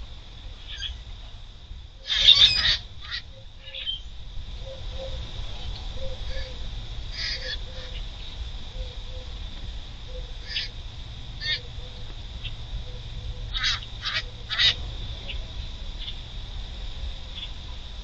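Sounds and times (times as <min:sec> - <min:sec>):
grackles calling harshly: 0:00.7 - 0:01.0, 0:02.0 - 0:04.1, 0:06.0 - 0:08.0, 0:10.1 - 0:10.8, 0:11.4 - 0:11.8, 0:13.4 - 0:14.8.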